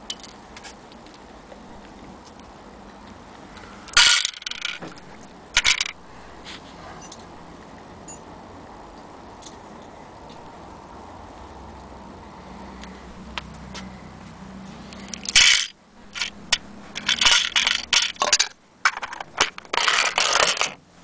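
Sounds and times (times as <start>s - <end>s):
small hard objects rattling: 3.9s - 6.0s, 15.0s - 20.8s.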